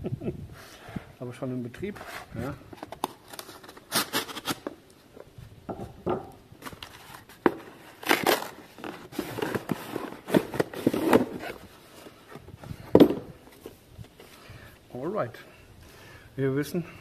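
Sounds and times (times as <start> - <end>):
cardboard tearing and scraping: 2.0 - 4.7, 6.6 - 11.7.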